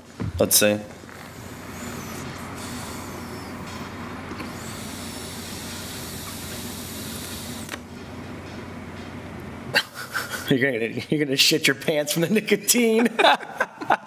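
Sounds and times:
e-cigarette breathy hiss: 1.1 - 3.7, 4.5 - 7.6.

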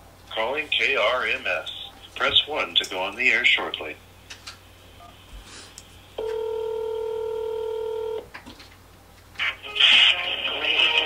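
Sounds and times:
faint phone line clicks: 6.2 - 6.6
telephone ringing tone: 6.2 - 8.2.

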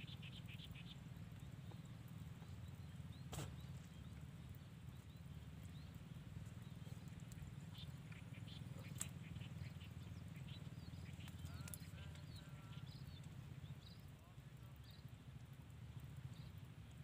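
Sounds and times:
small animals chirping: 0.0 - 1.8, 6.5 - 15.1.

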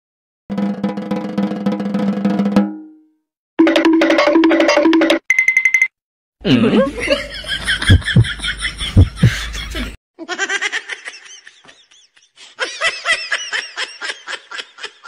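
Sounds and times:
music with heavy drum beats: 0.5 - 2.8
high-pitched giggling laughter: 6.5 - 15.0.

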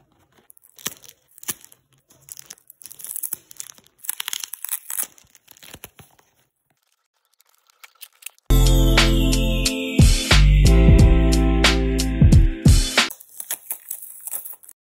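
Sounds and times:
plastic wrap crinkling: 0.0 - 8.5, 13.1 - 14.9.

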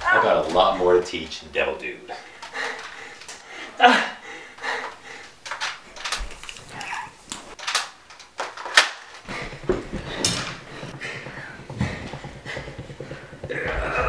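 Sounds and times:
toy blaster plastic clacks: 5.4 - 9.2.

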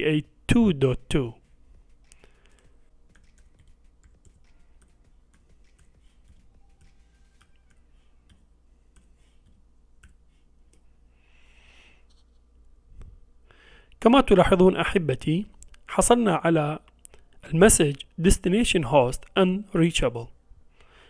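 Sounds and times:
low steady hum: 0.0 - 21.0
keystrokes on keyboard: 1.4 - 9.1.

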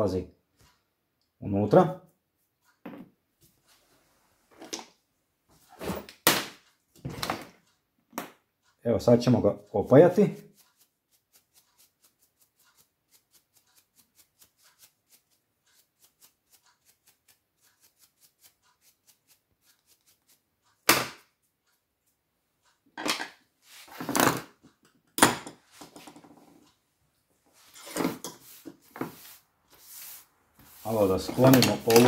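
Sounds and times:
hand tools clacking on steel bench: 31.2 - 32.0.

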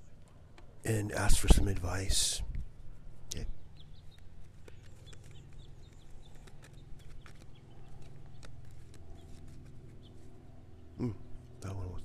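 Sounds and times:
faint bird chirps: 3.3 - 12.0.

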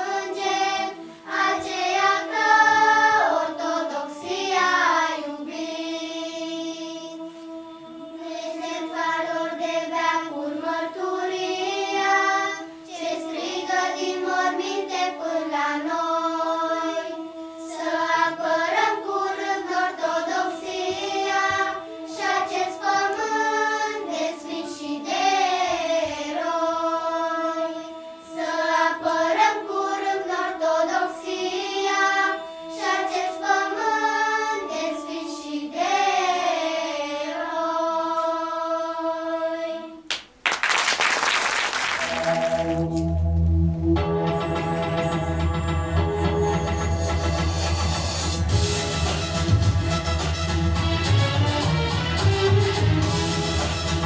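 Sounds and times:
children's choir singing: 0.0 - 40.1.

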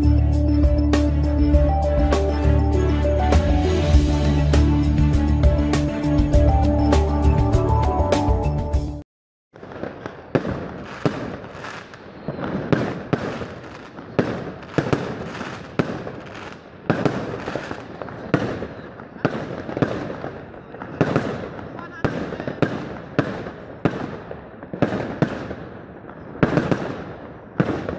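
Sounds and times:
intro music: 0.0 - 9.0
aerial fireworks bangs: 9.5 - 27.9
firework crackling: 9.6 - 27.9.

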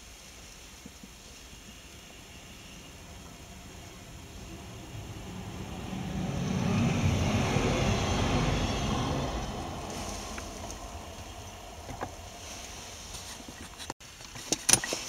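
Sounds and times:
train wheels rumbling on rails: 3.0 - 13.9.

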